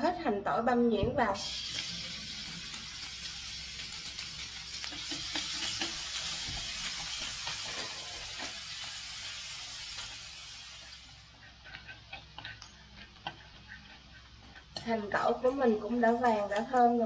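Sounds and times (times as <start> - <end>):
onion and garlic sizzling in oil: 1.4 - 17.0
chopsticks clicking and scraping pan: 2.6 - 8.9, 10.8 - 17.0.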